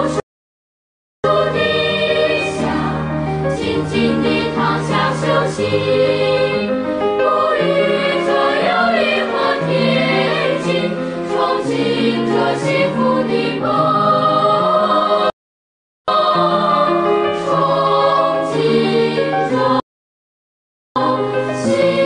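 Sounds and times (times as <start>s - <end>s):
choir singing: 0.0s - 0.2s, 1.2s - 15.4s, 16.1s - 19.8s, 21.0s - 22.0s
background music: 1.3s - 15.3s, 16.1s - 19.8s, 21.0s - 22.0s.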